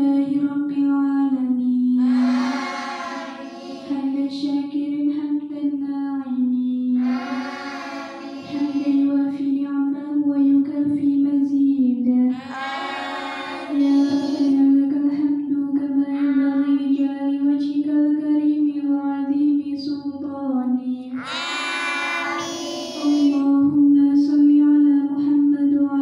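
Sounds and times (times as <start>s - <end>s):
girls chanting prayer in unison: 1.9s - 4.8s, 6.8s - 9.6s, 12.2s - 15.2s, 21.0s - 23.6s.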